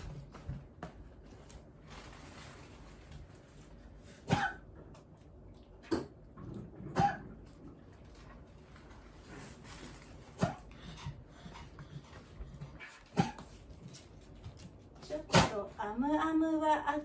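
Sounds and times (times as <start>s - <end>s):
dog coughing: 4.2s - 4.7s, 6.8s - 7.4s, 13.1s - 13.4s.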